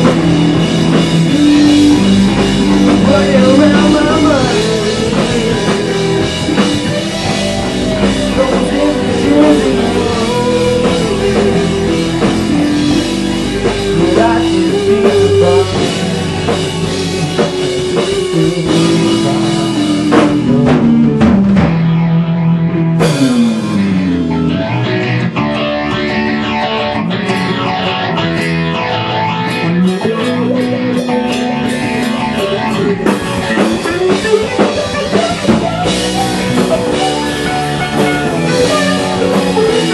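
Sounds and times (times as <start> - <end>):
rock band playing: 0.0 - 39.9
guitar falling slide: 29.3 - 39.9.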